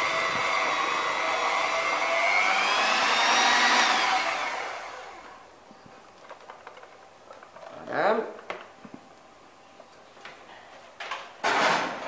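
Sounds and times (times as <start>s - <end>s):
electric hand mixer whining: 0.0s - 5.4s.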